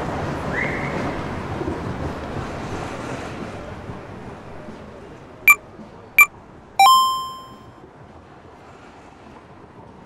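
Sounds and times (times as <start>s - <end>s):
bright electronic chime: 6.8s - 7.6s
short electronic beeps: 6.8s - 7.6s.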